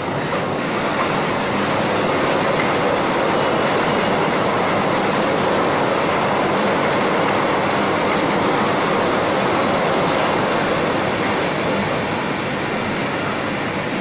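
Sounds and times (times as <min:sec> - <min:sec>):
machinery rattle and whir: 0:00.0 - 0:14.0.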